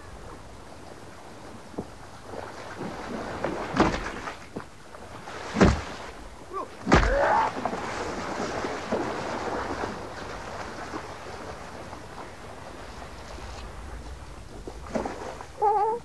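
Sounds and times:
water sloshing: 0:00.0 - 0:16.0
sledgehammer striking water: 0:03.4 - 0:04.4, 0:05.4 - 0:06.2, 0:06.8 - 0:07.8.

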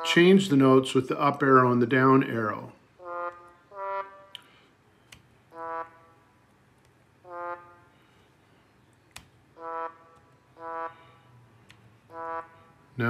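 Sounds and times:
synthesized trombone notes: 0:00.0 - 0:00.6, 0:03.0 - 0:04.4, 0:05.5 - 0:06.4, 0:07.2 - 0:08.0, 0:09.5 - 0:11.2, 0:12.0 - 0:13.0
keyboard clicks: 0:05.1 - 0:05.4, 0:08.9 - 0:09.4.

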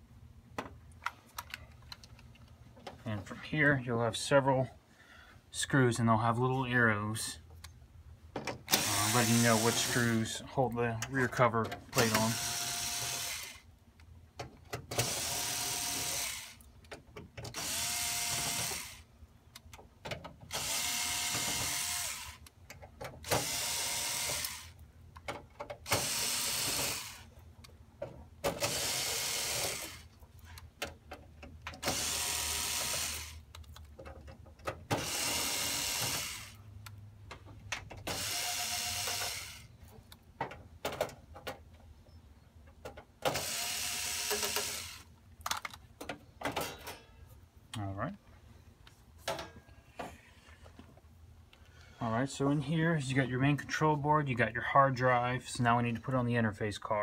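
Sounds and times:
cordless screwdriver running: 0:08.7 - 0:10.0, 0:12.0 - 0:13.6, 0:15.0 - 0:16.6, 0:17.6 - 0:19.1, 0:20.5 - 0:22.4, 0:23.3 - 0:24.8, 0:25.9 - 0:27.2, 0:28.6 - 0:30.1, 0:31.8 - 0:33.4, 0:35.0 - 0:36.6, 0:38.1 - 0:39.7, 0:43.3 - 0:45.1.

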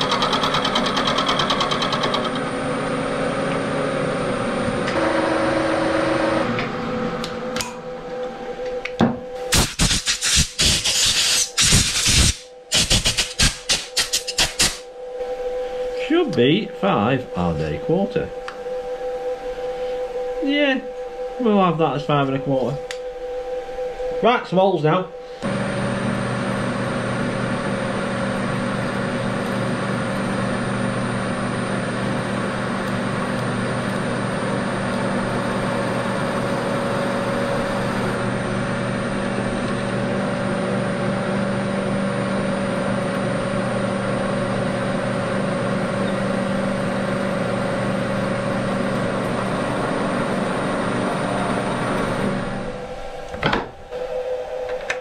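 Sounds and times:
milling machine motor humming: 0:00.0 - 0:09.4, 0:25.0 - 0:55.0.

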